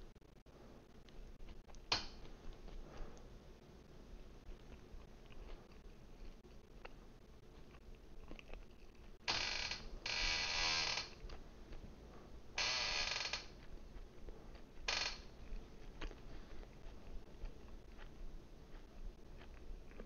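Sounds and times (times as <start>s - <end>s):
office chair creaking: 9.3s - 11.2s, 12.6s - 13.5s, 14.9s - 15.2s.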